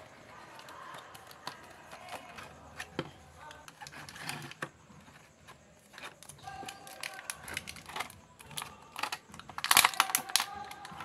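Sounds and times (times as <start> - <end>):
faint background music: 0.0 - 11.0
plastic blister packaging crinkling: 5.8 - 11.0.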